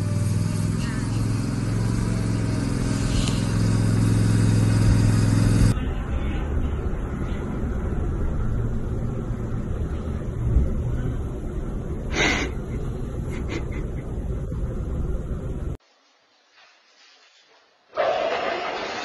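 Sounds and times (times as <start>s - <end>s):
mower engine running: 0.0s - 5.8s.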